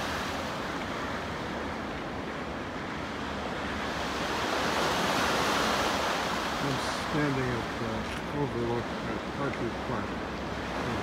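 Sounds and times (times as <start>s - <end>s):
waves washing on shore: 0.0s - 11.0s.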